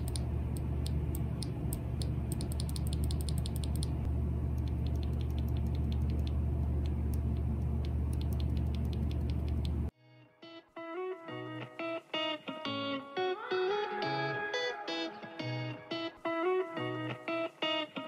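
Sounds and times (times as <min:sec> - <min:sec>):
keyboard switch clicking: 0:00.0 - 0:04.0, 0:04.6 - 0:09.8
low hum: 0:00.0 - 0:09.9.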